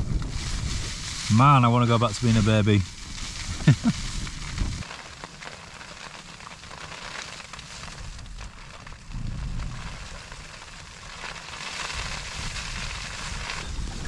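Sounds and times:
low rumble of gust: 0.0s - 4.8s, 8.0s - 10.7s, 11.9s - 14.0s
wind and rain on tent: 0.0s - 14.0s.

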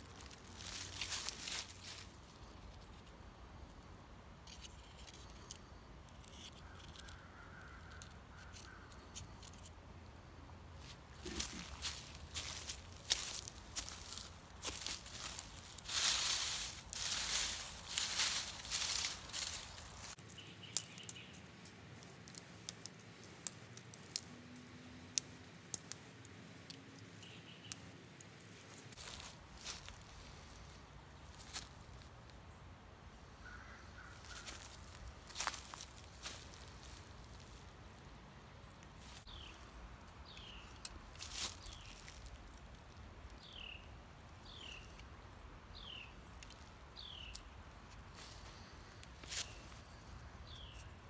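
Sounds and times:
faint crackles and clicks: 10.8s - 30.5s.

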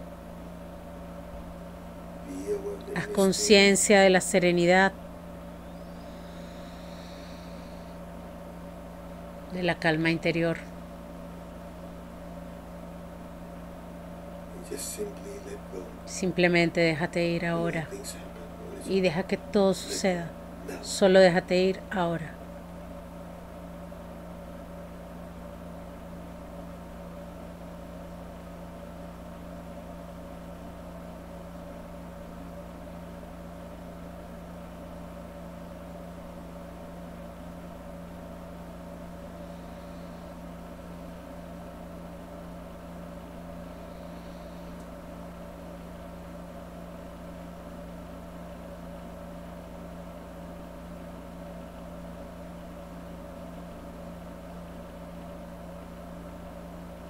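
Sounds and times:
low droning hum: 2.1s - 12.7s, 43.6s - 44.8s.

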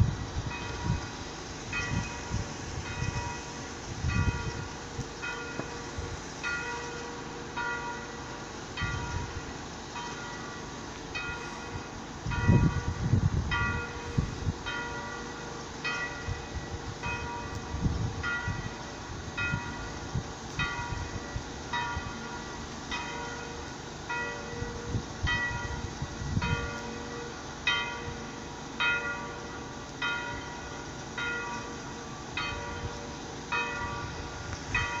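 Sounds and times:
wind rumbling on microphone: 0.0s - 6.9s, 8.8s - 9.6s, 10.9s - 15.2s, 15.8s - 23.0s, 23.6s - 27.0s, 32.4s - 35.0s.

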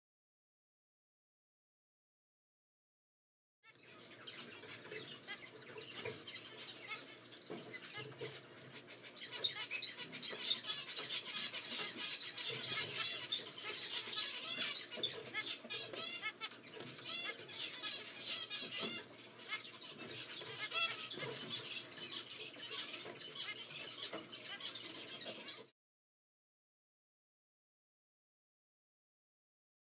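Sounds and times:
chicks cheeping: 3.6s - 25.7s.

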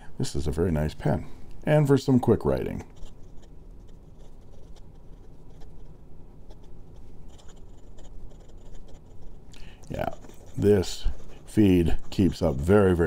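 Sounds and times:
fountain pen scratching on paper: 2.6s - 13.0s.

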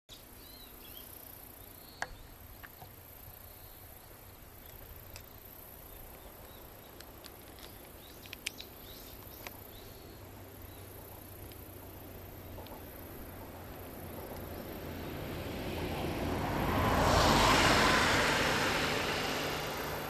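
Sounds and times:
insects droning: 0.1s - 20.0s
sharp clicks: 6.9s - 9.6s.

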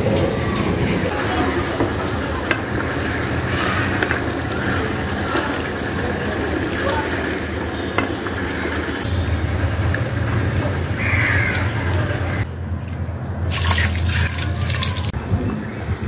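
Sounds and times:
water splashing into pot: 13.3s - 15.2s.

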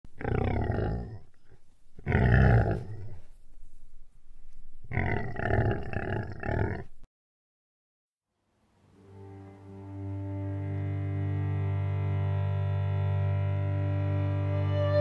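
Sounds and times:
animal roaring: 0.2s - 1.3s, 2.0s - 3.2s, 4.9s - 7.0s.

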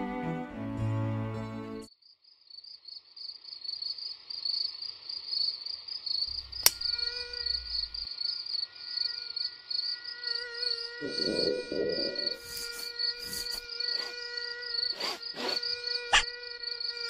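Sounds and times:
crickets chirping: 1.9s - 17.0s
mosquito buzzing whine: 6.1s - 17.0s
sharp click: 6.6s - 6.9s.

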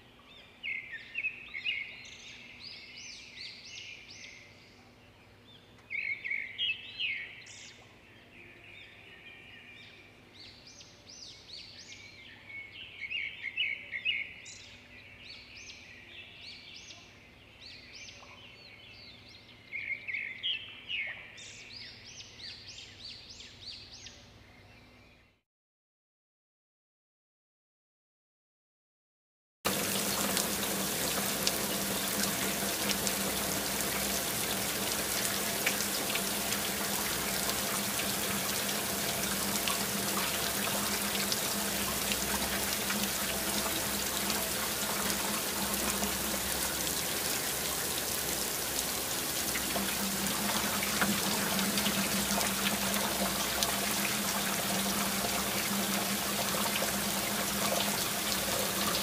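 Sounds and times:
hands splashing water: 29.7s - 59.0s
tap running into sink: 29.7s - 59.0s.

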